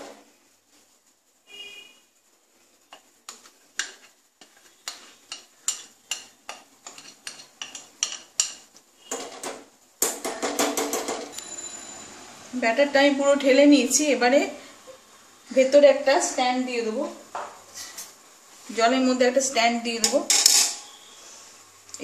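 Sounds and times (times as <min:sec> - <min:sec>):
kitchenware clinking: 0:04.8 - 0:11.8, 0:20.0 - 0:21.0.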